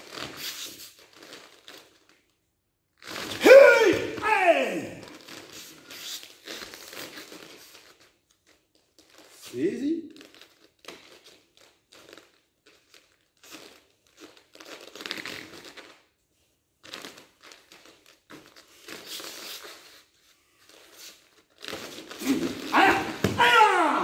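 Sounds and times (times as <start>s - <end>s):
person shouting loudly: 3.4s - 5.1s, 22.2s - 24.0s
uniforms rustling and snapping: 10.1s - 16.2s, 16.8s - 24.0s.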